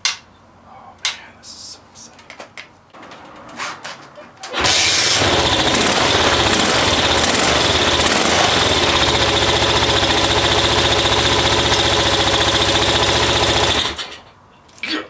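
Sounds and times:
motorcycle engine running: 0:05.0 - 0:14.0.

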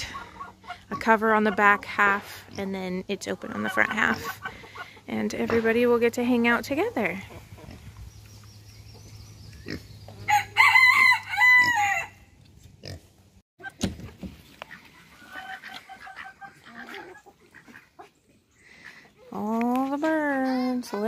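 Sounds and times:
hens clucking softly: 0:03.4 - 0:05.1, 0:14.5 - 0:18.4
rooster crowing: 0:10.3 - 0:12.2.

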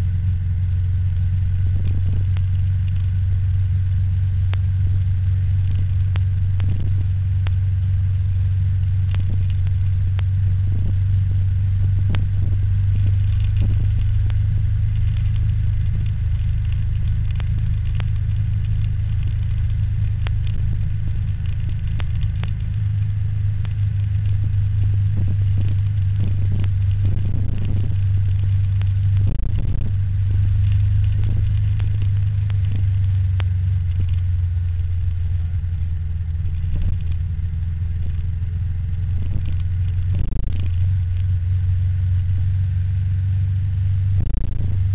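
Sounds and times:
bike rolling on road rumble: 0:00.0 - 0:44.9.

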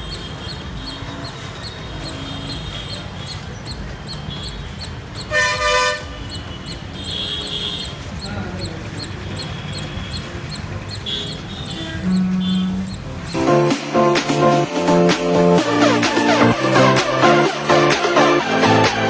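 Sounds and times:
squirrel chipping calls: 0:00.0 - 0:05.7, 0:06.3 - 0:13.4
traffic noise: 0:00.0 - 0:19.0
vehicle horn: 0:00.2 - 0:03.3, 0:05.3 - 0:08.0, 0:11.1 - 0:13.0.

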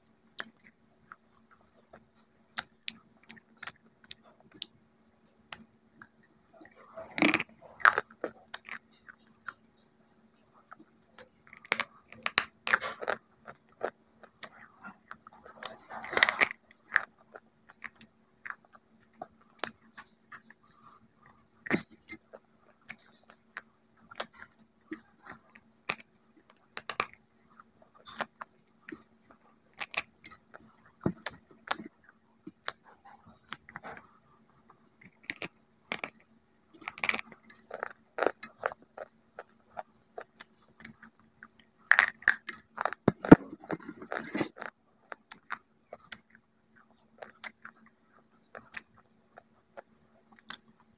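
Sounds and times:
chewing: 0:05.5 - 0:50.9
crunchy bar cracking: 0:36.8 - 0:46.2.

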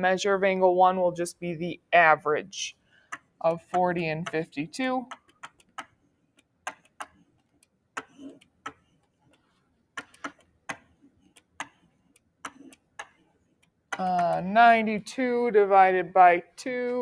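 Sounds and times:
stylus tapping writing surface: 0:03.1 - 0:14.5.

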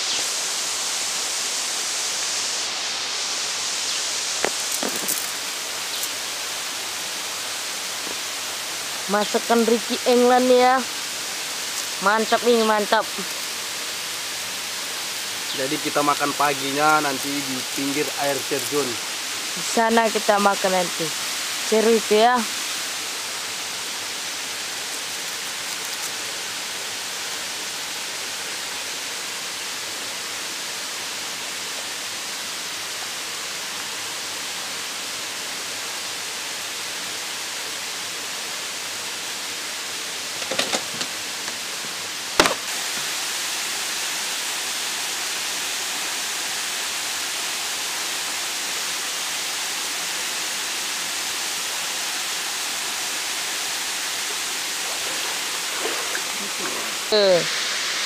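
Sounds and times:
waterfall and stream rushing: 0:00.0 - 0:58.0
sharp knocks: 0:42.4 - 0:42.7.

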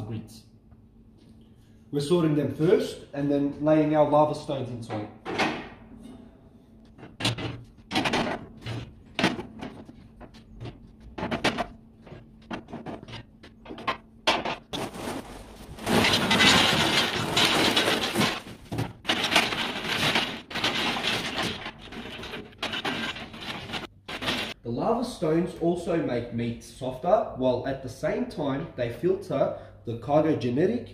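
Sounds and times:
lava stones tumbling over grates: 0:14.6 - 0:24.6.

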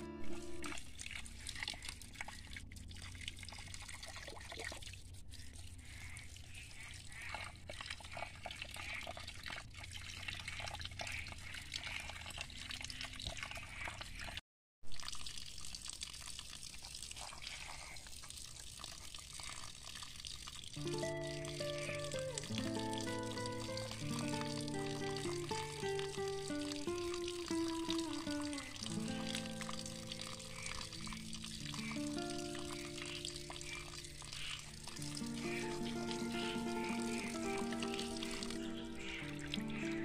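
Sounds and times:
music: 0:00.0 - 0:00.8, 0:20.8 - 0:30.8, 0:31.5 - 0:33.6, 0:34.9 - 0:40.0
water drips: 0:00.0 - 0:40.0
water trickling over rocks: 0:00.3 - 0:40.0.

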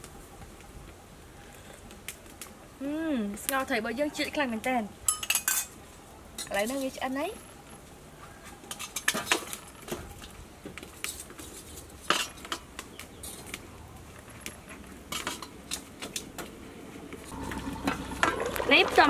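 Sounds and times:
metal utensils clinking on a pot: 0:05.1 - 0:05.8, 0:08.7 - 0:09.8.

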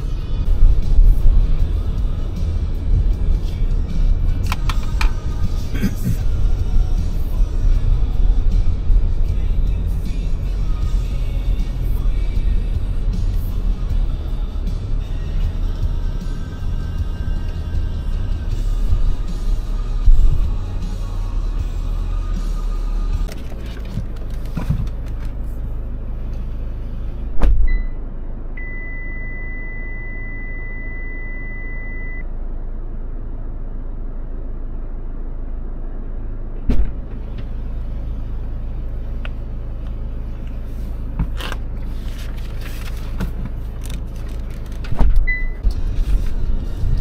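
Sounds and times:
car engine idling hum: 0:00.0 - 0:47.0
high electronic beep: 0:28.6 - 0:32.3, 0:45.3 - 0:45.6.

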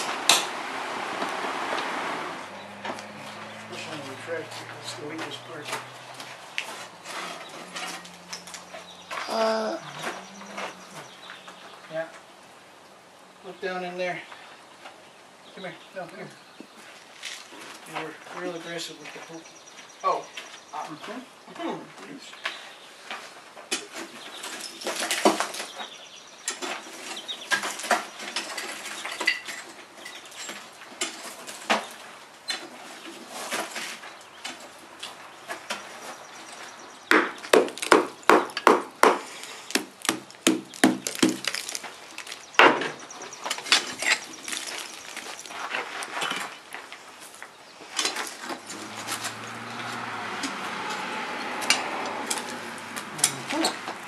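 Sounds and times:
broken clay clattering: 0:37.1 - 0:46.6.

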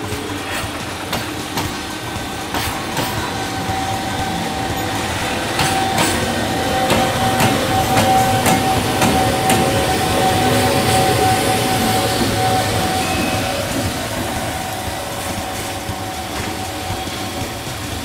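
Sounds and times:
locomotive high whine: 0:00.0 - 0:18.0
train wheels clacking over rail joints: 0:00.0 - 0:18.0.

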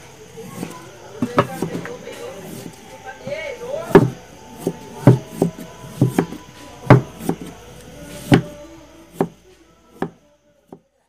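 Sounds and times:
knife chopping on wooden block: 0:00.5 - 0:02.7, 0:03.9 - 0:07.6, 0:08.2 - 0:09.4.

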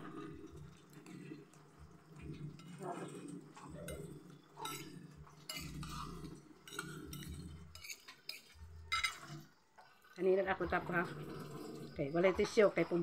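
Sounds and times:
cutlery clinking on glass plate: 0:03.8 - 0:09.4.

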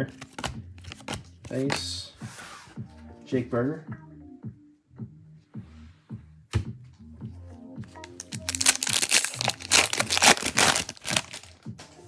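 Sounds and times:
background music: 0:00.0 - 0:12.0
foil wrapper tearing and crinkling: 0:08.2 - 0:11.5.

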